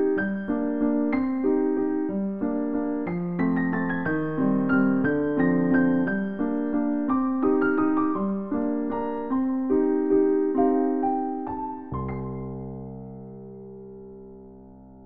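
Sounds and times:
simple piano melody: 0:00.0 - 0:15.0.

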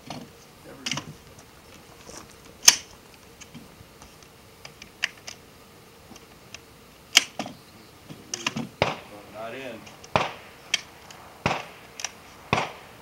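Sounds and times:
rifle gunshots: 0:08.8 - 0:09.2, 0:10.1 - 0:13.0.

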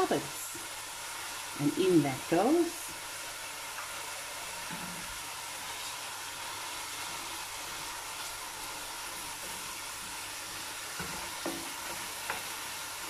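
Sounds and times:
onions sizzling in oil: 0:00.0 - 0:13.0.

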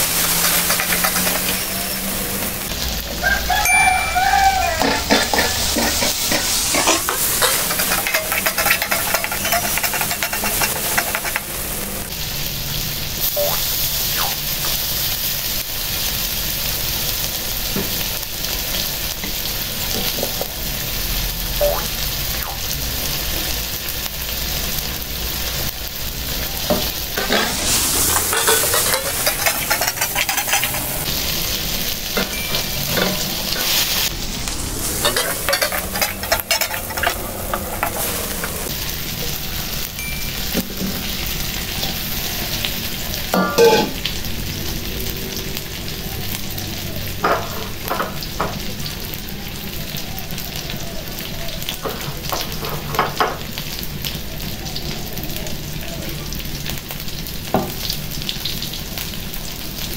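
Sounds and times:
metal spatula scraping wok: 0:00.0 - 0:02.6, 0:03.7 - 0:12.1, 0:26.7 - 0:31.4, 0:32.2 - 0:38.8
food sizzling in wok: 0:00.0 - 0:59.9.

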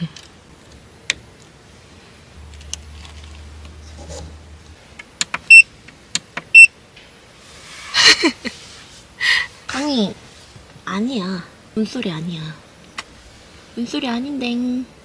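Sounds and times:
low hum: 0:00.0 - 0:09.2
high-pitched electronic beeps: 0:05.5 - 0:05.7.

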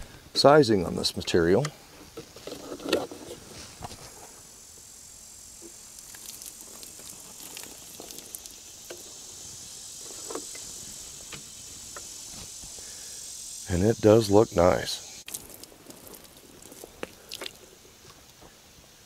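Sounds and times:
insects hissing: 0:00.0 - 0:19.0
water splashing onto wood: 0:05.6 - 0:12.9, 0:15.2 - 0:17.9.

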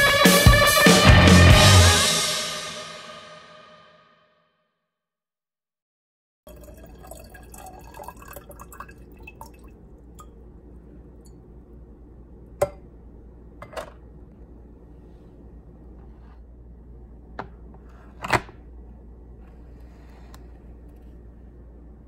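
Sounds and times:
kettle bubbles crackling: 0:06.5 - 0:11.8
kettle low hum: 0:06.5 - 0:22.0.

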